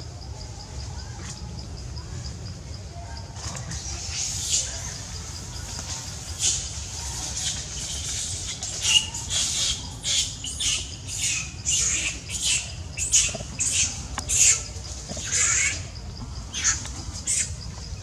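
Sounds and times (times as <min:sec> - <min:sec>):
baby monkey screaming: 0:08.6 - 0:15.9, 0:16.5 - 0:17.5.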